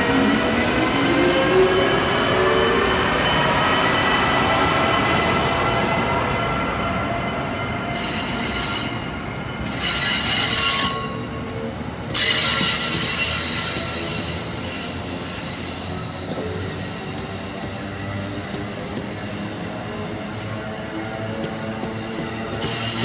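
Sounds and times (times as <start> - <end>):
train wheels rumbling on rail: 0.0 - 23.0
high-pitched wheel squeal: 8.0 - 17.6.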